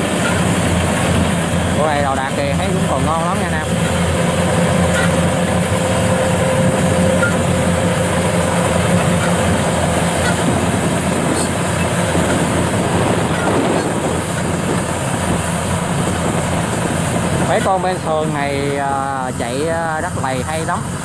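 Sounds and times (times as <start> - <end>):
combine harvester drone: 0.0 - 21.0
faint machine whine: 1.7 - 10.4.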